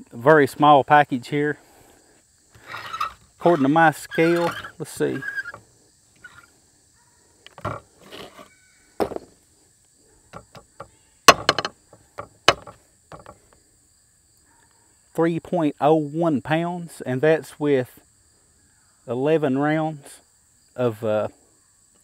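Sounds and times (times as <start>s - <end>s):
rifle set down on wooden bench: 7.5s - 7.9s, 9.0s - 9.4s, 10.3s - 13.4s.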